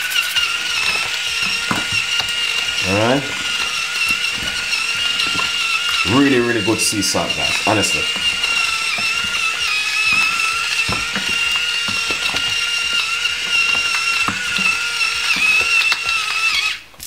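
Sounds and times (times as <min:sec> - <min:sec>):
electric grinder motor whine: 0:00.0 - 0:17.0
salt crystals crunching: 0:00.2 - 0:16.7.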